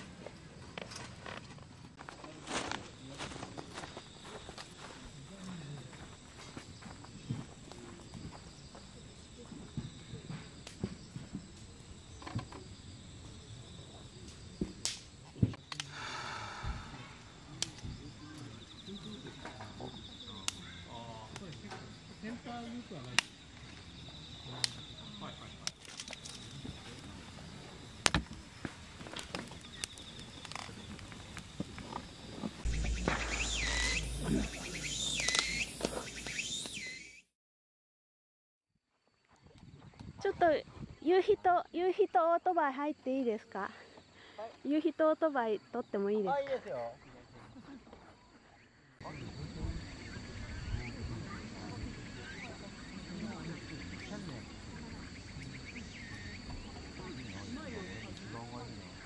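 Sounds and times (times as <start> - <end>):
insects chirping: 0.0 - 37.2, 38.9 - 59.0
low thump: 32.6 - 35.2
high whistled calls: 32.6 - 37.3.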